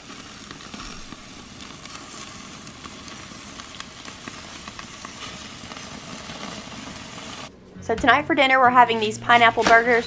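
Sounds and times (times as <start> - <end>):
meat sizzling on a grill: 0.0 - 7.5.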